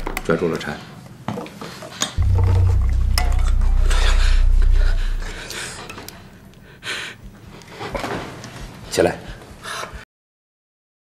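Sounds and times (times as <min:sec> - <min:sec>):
deep low hum: 0:02.2 - 0:05.9.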